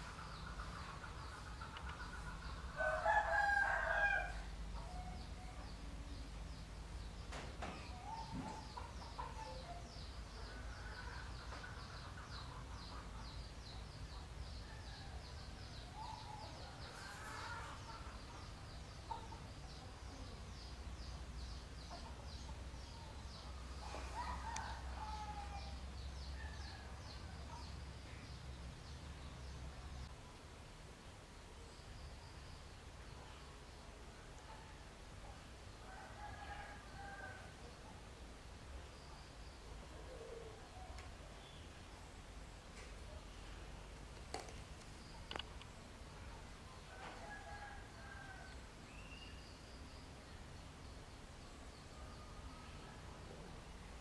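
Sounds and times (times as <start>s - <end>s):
chickens clucking: 0.0s - 2.8s
rooster crowing: 2.8s - 5.2s, 23.8s - 25.8s.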